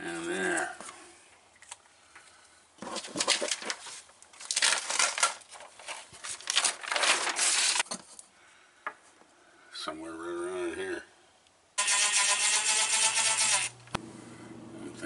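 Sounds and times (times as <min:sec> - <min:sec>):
tape peeling off wall: 0:02.8 - 0:07.9
paper crinkling: 0:02.8 - 0:08.2.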